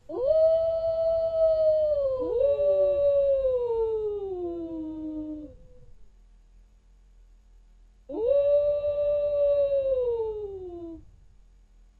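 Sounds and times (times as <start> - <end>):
wolves howling: 0.1 - 5.6.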